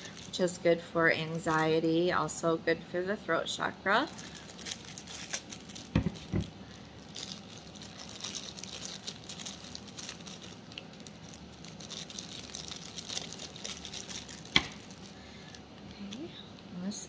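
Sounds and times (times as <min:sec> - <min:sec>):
packaging crinkling and rustling: 0:00.0 - 0:00.5, 0:03.9 - 0:16.3.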